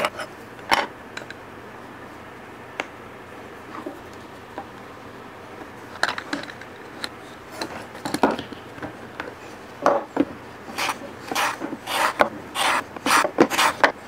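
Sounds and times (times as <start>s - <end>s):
short scraping rubs: 10.7s - 13.9s.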